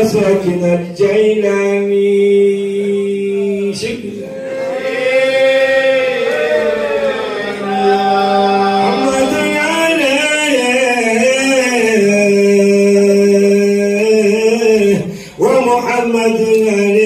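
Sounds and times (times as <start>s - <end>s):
man chanting into microphone: 0.0s - 4.4s, 8.6s - 17.0s.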